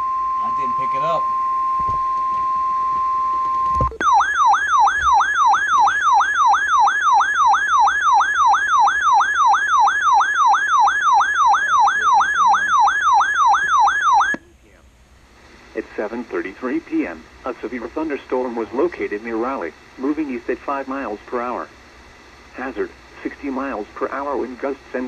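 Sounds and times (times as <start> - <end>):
warbling siren-like alarm: 0.0 - 14.4
steady alert tone: 4.0 - 14.4.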